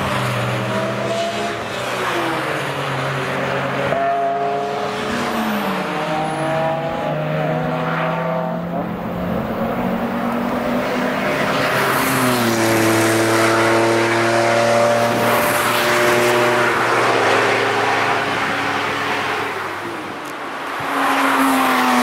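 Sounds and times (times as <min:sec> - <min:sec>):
race car engine at high revs: 0:00.0 - 0:22.0.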